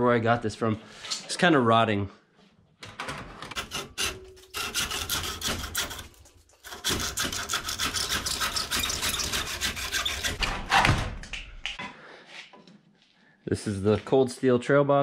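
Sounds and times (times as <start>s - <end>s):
hand saw cutting wood: 3.5s - 10.5s.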